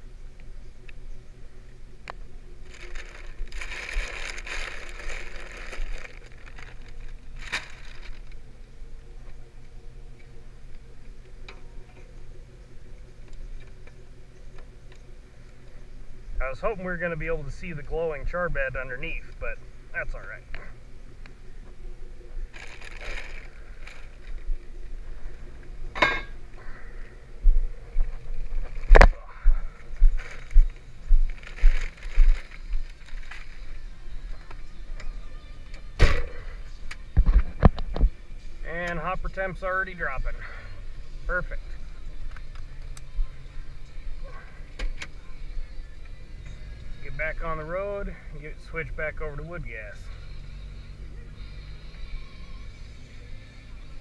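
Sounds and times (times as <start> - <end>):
engine idling hum: 0.0 - 54.0
paper sack rustling and scraping: 2.6 - 8.4, 22.5 - 24.5, 31.3 - 33.9.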